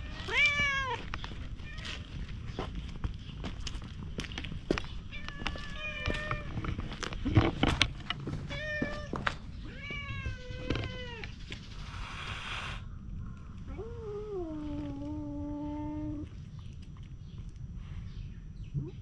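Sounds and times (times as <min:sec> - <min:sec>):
cat meowing: 0:00.0 - 0:01.0, 0:09.7 - 0:11.3.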